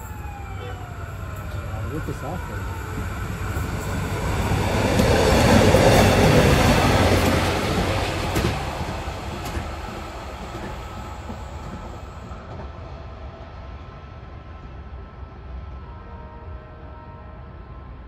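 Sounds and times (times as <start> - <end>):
track machine rolling on rails: 1.3 - 12.9.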